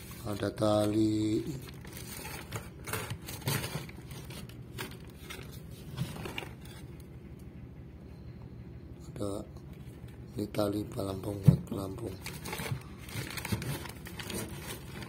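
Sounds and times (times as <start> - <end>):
hands rummaging in locker: 0.0 - 6.9, 12.2 - 15.0
plastic crinkles: 0.0 - 7.1, 12.0 - 15.0
low hum: 1.4 - 11.0.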